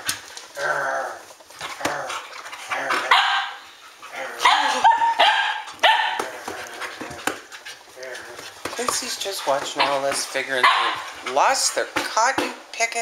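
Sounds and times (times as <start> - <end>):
dogs barking and yipping: 1.5 - 11.4.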